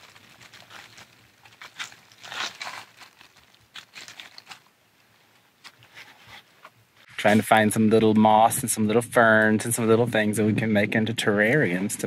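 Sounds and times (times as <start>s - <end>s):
dry leaves crunching and rustling: 0.0s - 4.7s.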